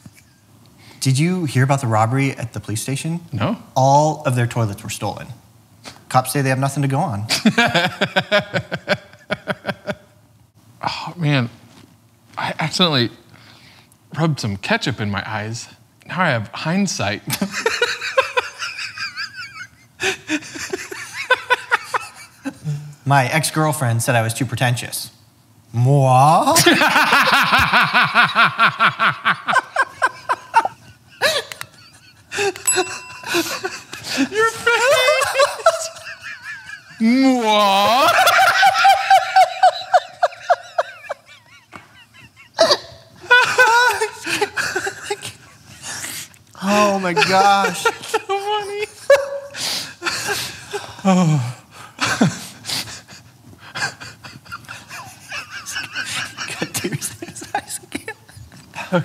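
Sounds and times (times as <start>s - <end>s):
man laughing hard: 7.3s - 10.1s, 26.4s - 46.0s, 46.6s - 59.0s.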